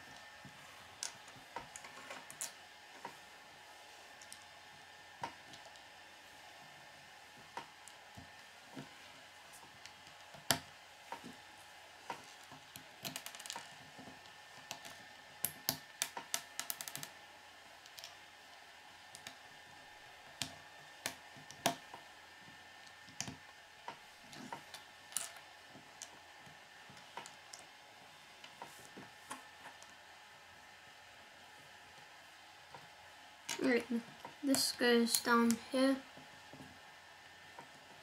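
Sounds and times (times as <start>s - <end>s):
plastic bricks clicking together: 14.7s - 17.1s.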